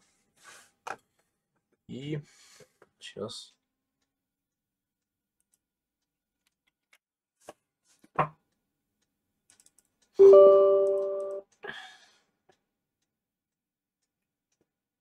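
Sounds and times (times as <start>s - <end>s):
computer keyboard clicks: 9.5s - 9.9s.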